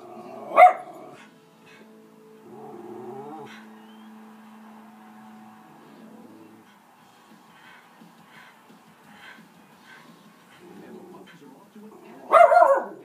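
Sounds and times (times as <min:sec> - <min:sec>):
tv audio with music: 0:00.0 - 0:13.0
dog barking: 0:00.4 - 0:01.8, 0:12.2 - 0:13.0.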